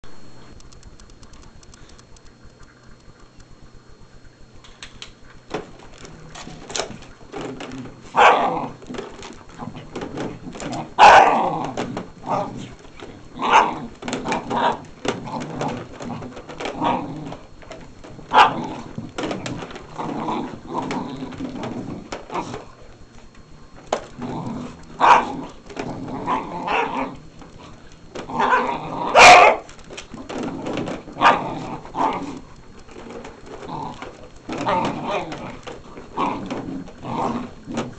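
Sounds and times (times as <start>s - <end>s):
dogs growling: 5.5s - 37.9s
dogs barking: 8.1s - 8.8s, 10.8s - 12.7s, 13.4s - 14.8s, 18.3s - 18.9s, 25.0s - 25.6s, 26.2s - 27.3s, 28.3s - 29.7s, 31.2s - 32.2s.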